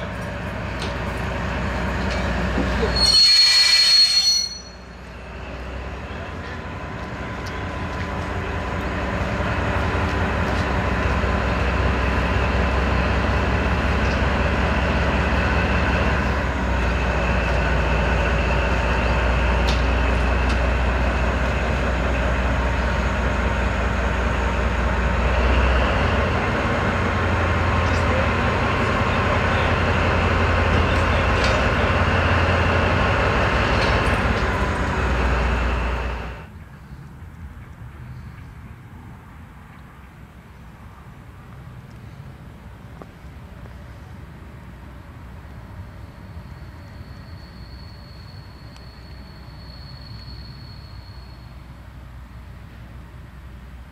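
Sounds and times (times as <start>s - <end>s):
locomotive engine throb: 4.7s - 36.5s.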